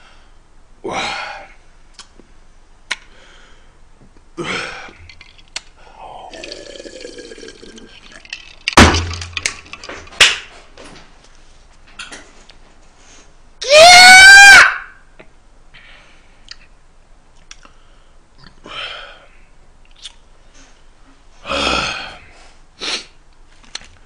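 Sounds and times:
person drinking from a glass: 6.2s - 8.6s
hand claps: 10.2s - 10.5s.

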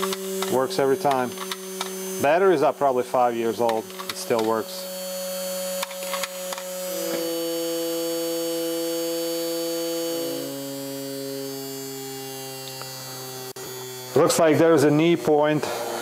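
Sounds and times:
drill clicks: 0.0s - 2.0s, 3.5s - 4.8s, 5.8s - 7.3s
cordless drill motor whining: 0.0s - 16.0s.

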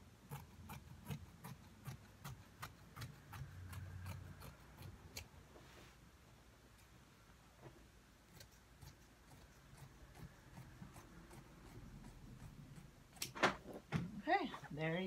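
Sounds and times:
scissors snipping fabric: 0.0s - 5.4s, 8.2s - 13.4s.

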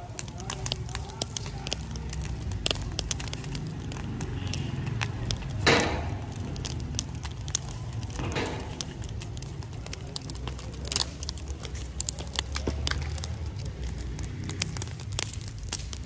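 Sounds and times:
wood fire crackling: 0.0s - 16.0s
sharp pops: 0.4s - 13.6s
low steady rumble: 5.0s - 11.1s.

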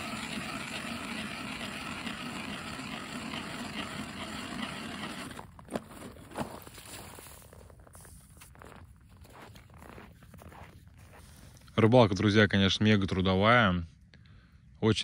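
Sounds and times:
ice auger scraping grind: 0.0s - 8.5s.

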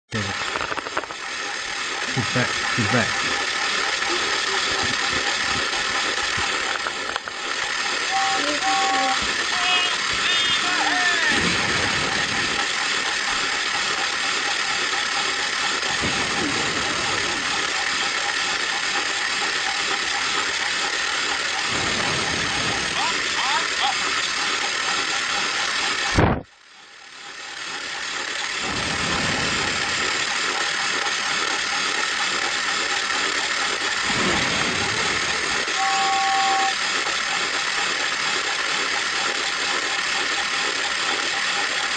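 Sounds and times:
toy train motor whirring rattle: 0.2s - 41.9s
short steady tones: 1.6s - 26.4s, 35.3s - 37.0s.

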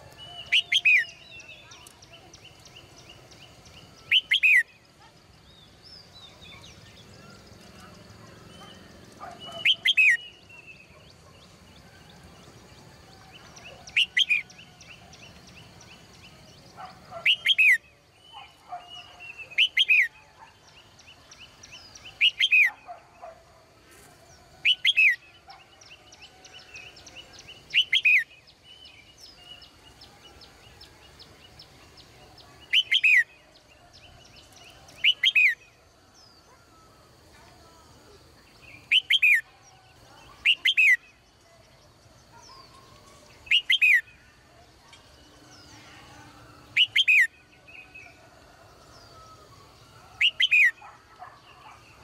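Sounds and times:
bird whistled calls: 0.2s - 1.2s, 4.0s - 4.7s, 9.3s - 10.4s, 46.8s - 47.3s, 50.2s - 50.8s.

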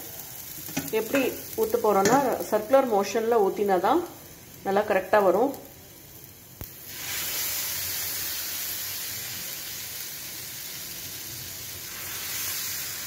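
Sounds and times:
batter sizzling on hot pan: 0.0s - 13.0s.

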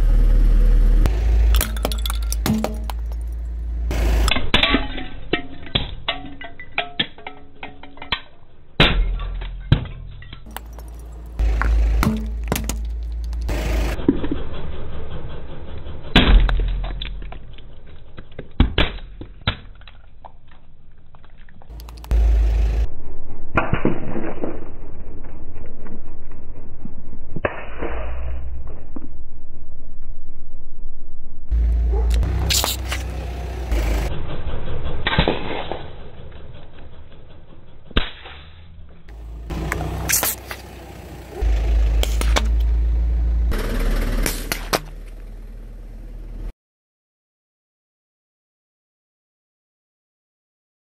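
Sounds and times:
engine and tyre rumble: 0.0s - 23.5s, 28.9s - 46.5s
tyre crunching plastic ice cubes: 10.4s - 13.5s
tyre crushing plastic cups: 18.2s - 22.1s.

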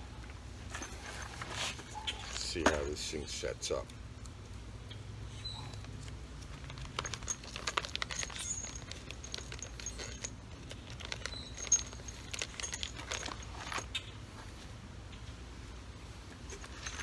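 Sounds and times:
small metal parts clinking: 5.9s - 14.0s, 16.5s - 17.0s.

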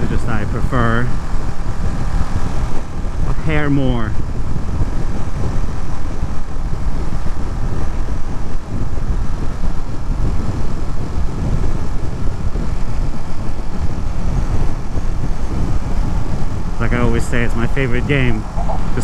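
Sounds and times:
motorcycle engine drone: 0.0s - 19.0s
wind rush: 0.0s - 19.0s.

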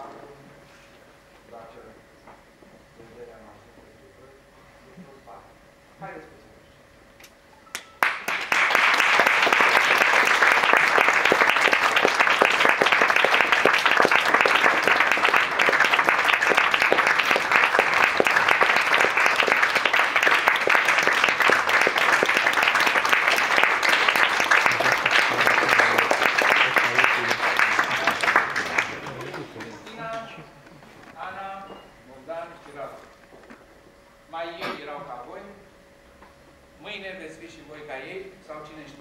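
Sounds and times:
audience applauding: 8.0s - 30.5s.

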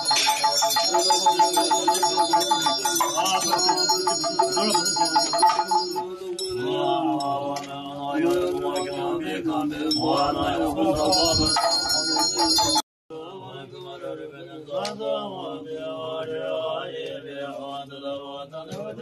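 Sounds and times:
hand bell ringing: 0.0s - 6.7s, 11.0s - 12.8s
low voice chanting: 0.0s - 19.0s
monks chanting: 0.0s - 19.0s.

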